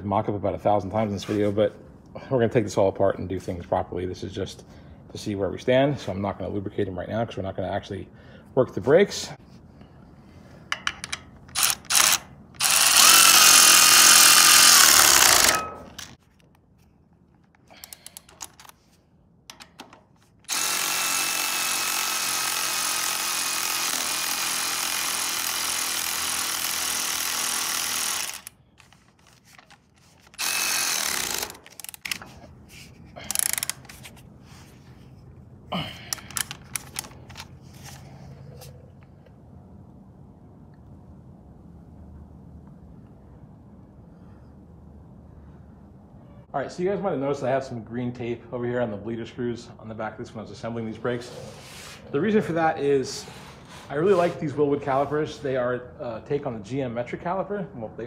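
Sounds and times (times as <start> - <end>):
cordless ratchet running: 10.8 - 16.2, 20.5 - 29.4, 30.2 - 32.2, 33.2 - 33.9, 36.1 - 37.5.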